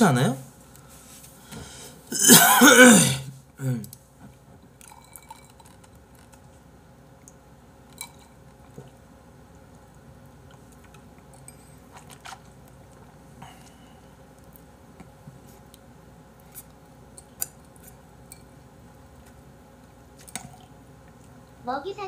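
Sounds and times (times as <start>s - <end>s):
man's throaty vocal noise: 2.1s - 3.9s.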